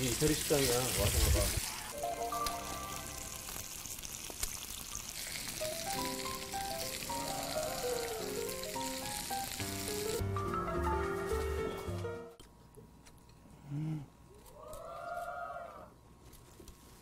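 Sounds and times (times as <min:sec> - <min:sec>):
fish sizzling in oil: 0:00.0 - 0:10.3
light background music: 0:02.0 - 0:03.6, 0:05.6 - 0:12.4.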